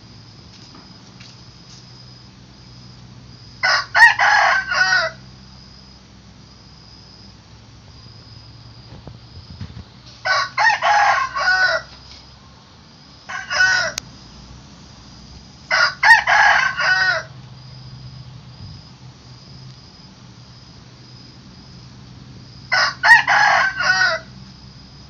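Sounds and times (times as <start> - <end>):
rooster crowing: 3.6 - 5.3, 10.2 - 12.0, 13.3 - 14.0, 15.7 - 17.4, 22.7 - 24.4.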